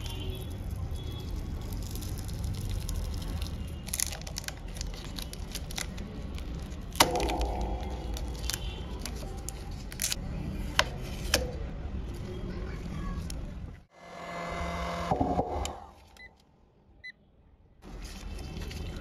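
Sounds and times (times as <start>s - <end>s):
tape peeling crackles: 0.0s - 10.2s.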